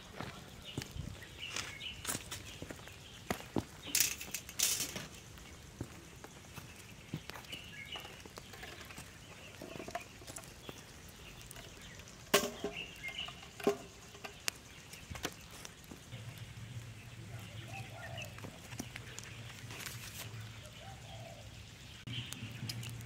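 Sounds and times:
birds chirping: 0.0s - 23.0s
wood fire crackling: 0.0s - 23.0s
metal tin clanking on grill: 3.8s - 5.2s, 7.9s - 14.8s.

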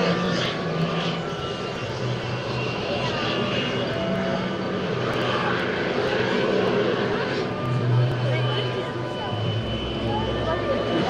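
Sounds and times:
heavy engines droning: 0.0s - 11.0s
people's voices: 7.7s - 11.0s.

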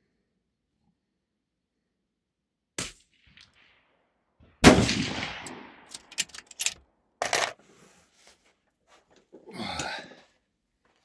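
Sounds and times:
rifle shot: 2.8s - 3.9s, 4.6s - 5.9s
metallic clicks: 5.9s - 6.8s.

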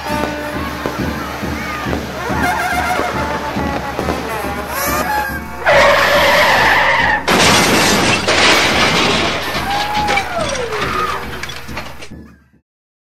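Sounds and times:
fireworks bursting and crackling: 0.0s - 12.2s.

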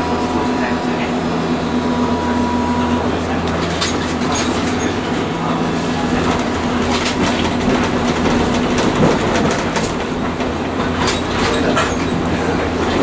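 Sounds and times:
streetcar low hum: 0.0s - 13.0s
rolling wheel noise: 3.5s - 13.0s
wheels clicking over track: 6.0s - 13.0s.

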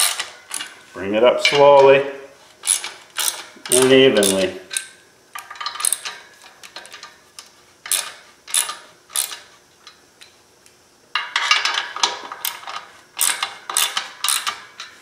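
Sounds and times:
socket ratchet clicking: 2.6s - 7.1s, 13.2s - 14.6s.

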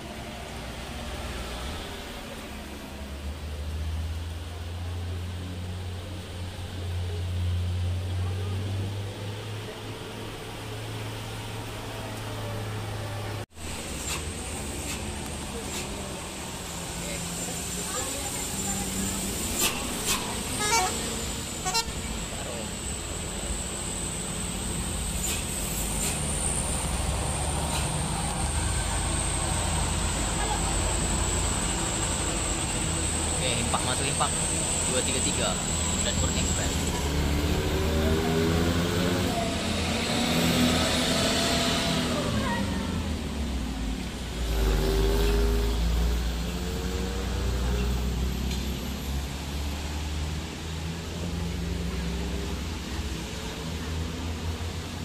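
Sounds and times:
bus diesel engine running: 0.0s - 55.0s
tyres hissing on wet road: 0.0s - 55.0s
brief high hisses: 13.7s - 16.0s, 19.5s - 21.8s, 25.2s - 26.8s.

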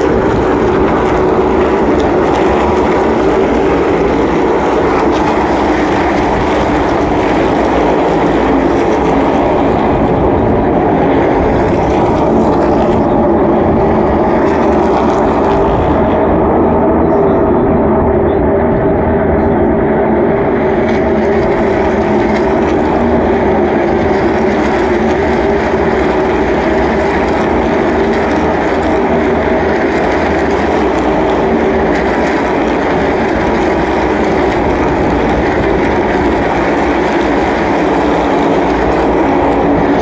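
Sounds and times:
race cars droning at speed: 0.0s - 40.0s.

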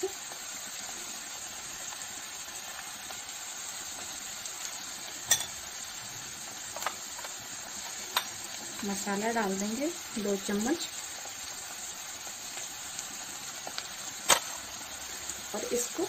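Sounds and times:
vegetables sizzling in oil: 0.0s - 16.0s.

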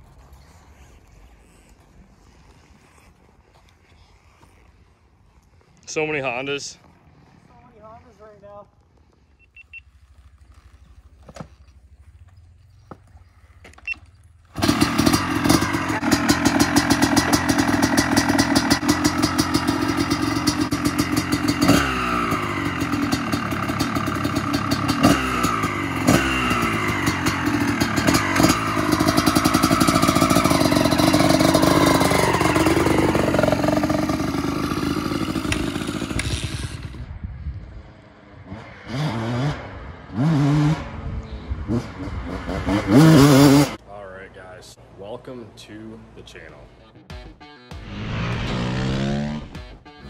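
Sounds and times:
two-stroke engine revving: 14.5s - 37.1s, 38.4s - 41.0s, 41.6s - 43.8s, 47.7s - 50.0s.

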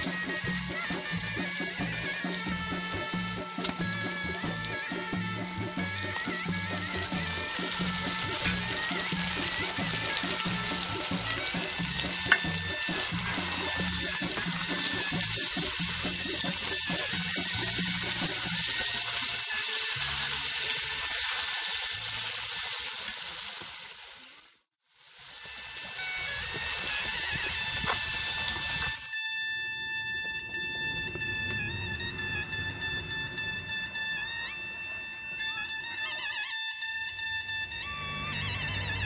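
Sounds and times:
background music: 0.0s - 21.9s
food sizzling in a pan: 0.0s - 29.1s.

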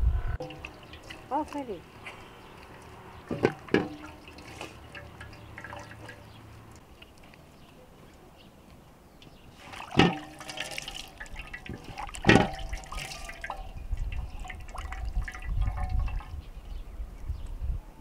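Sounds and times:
water splashing from metal basin: 0.4s - 7.4s, 9.5s - 16.8s
water dripping into basin: 0.4s - 7.5s, 9.6s - 16.7s.

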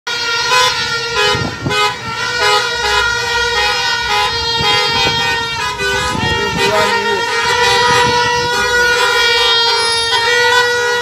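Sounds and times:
vehicle horns honking: 0.1s - 11.0s.

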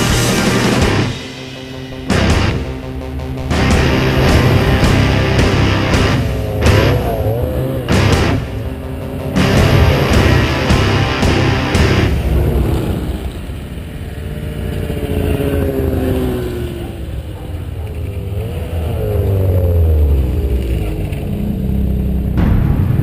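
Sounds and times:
background music: 0.0s - 13.5s
snowmobile engines: 0.0s - 22.4s.

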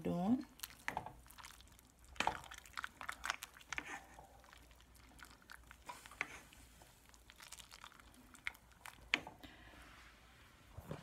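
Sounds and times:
soup simmering: 0.5s - 9.7s
spoon stirring a pot: 0.6s - 9.4s.

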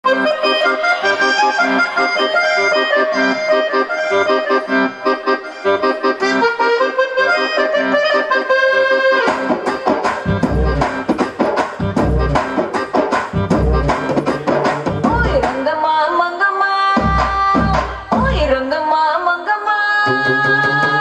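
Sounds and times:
dance music: 0.0s - 16.3s, 16.9s - 19.0s
heavy drums with bass thuds: 10.2s - 15.6s, 17.0s - 18.5s.

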